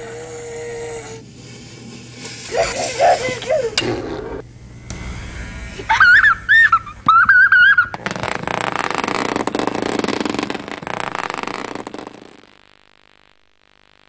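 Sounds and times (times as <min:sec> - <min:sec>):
steady buzzing: 0:00.0 - 0:14.0
child giggling: 0:02.5 - 0:04.4, 0:05.8 - 0:08.0.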